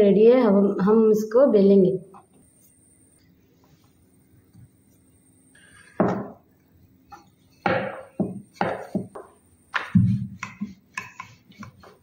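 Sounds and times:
rolling pin rolling dough: 4.4 - 12.0
rolling pin knocking on board: 6.0 - 6.4, 7.6 - 12.0.

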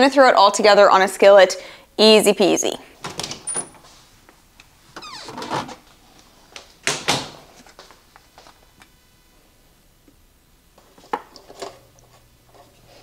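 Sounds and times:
door opening and shutting: 3.0 - 3.9, 5.0 - 5.9, 6.8 - 7.5.

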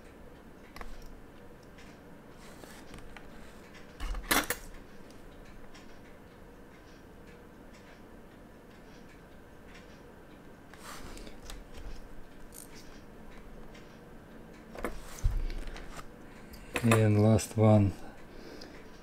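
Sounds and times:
metal tools clicking and scraping: 12.4 - 13.0.

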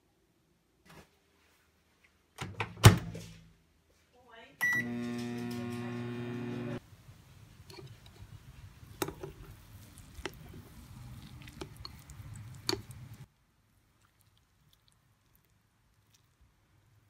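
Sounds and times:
microwave oven humming: 4.6 - 6.8
chopsticks stirring noodles: 7.4 - 13.3.

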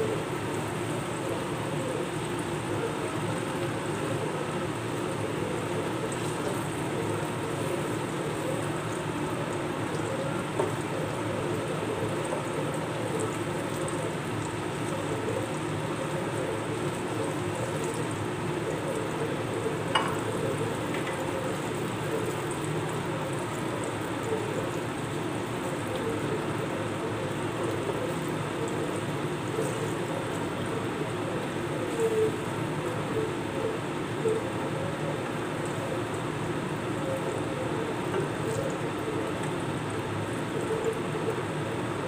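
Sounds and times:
metal spatula knocking a pan: 20.0 - 20.3.

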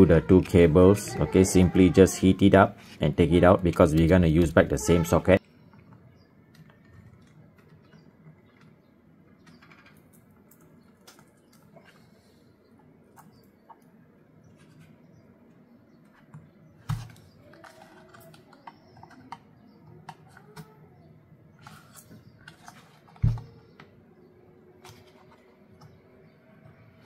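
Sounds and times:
hand tool clicking and scraping plastic: 16.9 - 20.7.

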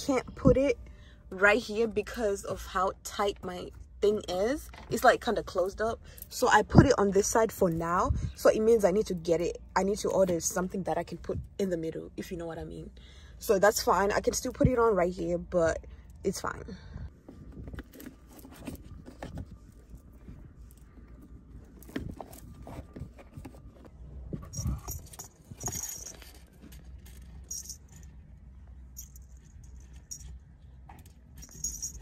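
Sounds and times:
low steady rumble: 0.0 - 32.0
metal chains jingling: 24.4 - 28.2, 28.9 - 30.5, 31.3 - 32.0.

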